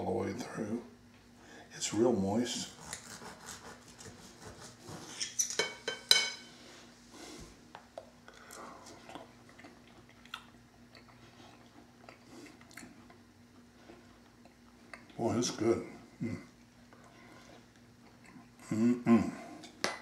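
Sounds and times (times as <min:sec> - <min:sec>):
cutlery scraping on a plate: 0:04.9 - 0:06.5
soft chewing: 0:07.6 - 0:15.2, 0:16.0 - 0:18.7.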